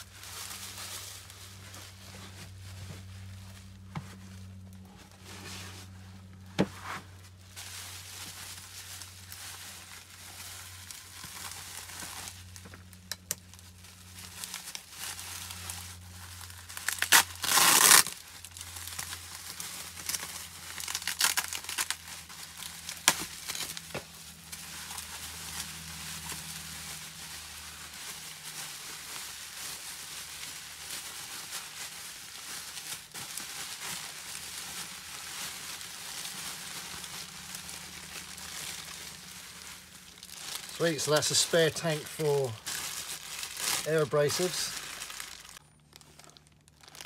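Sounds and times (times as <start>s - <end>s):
bubble wrap crinkling: 0.0s - 47.0s
packaging tearing rip: 16.4s - 23.9s.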